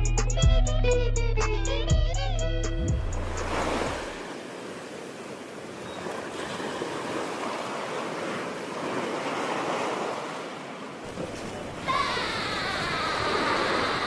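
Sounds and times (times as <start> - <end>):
waves washing in: 2.9 - 14.0.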